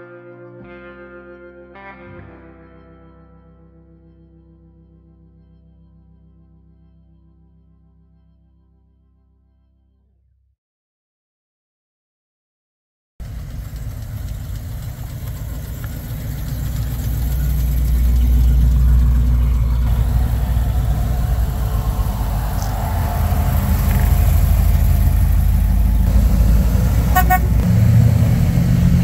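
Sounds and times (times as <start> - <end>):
car engines rumbling: 13.2 - 29.0
car horn toot: 27.0 - 27.7.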